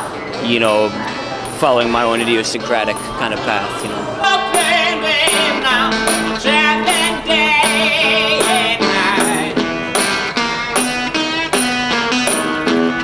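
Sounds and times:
blues electric guitar: 0.0 - 13.0
steady beat: 0.0 - 13.0.

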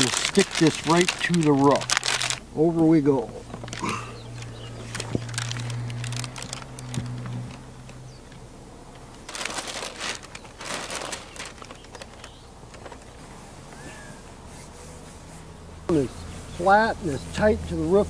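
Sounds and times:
plastic film crinkling: 0.0 - 8.0, 9.3 - 13.3.

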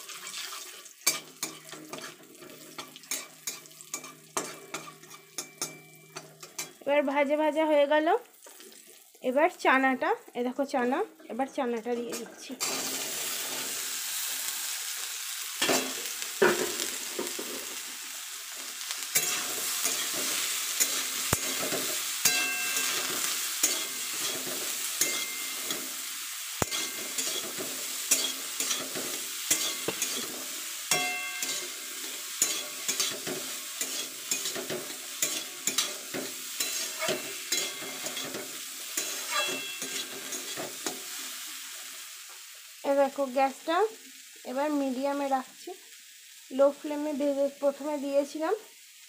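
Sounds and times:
metal spatula scraping pan: 0.0 - 6.8, 11.9 - 13.8, 19.1 - 26.0, 26.6 - 41.2
food sizzling in hot oil: 0.0 - 49.0.

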